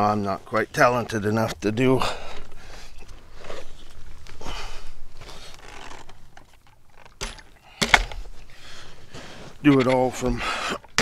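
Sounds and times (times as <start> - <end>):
camera handling rustling: 5.1 - 8.5.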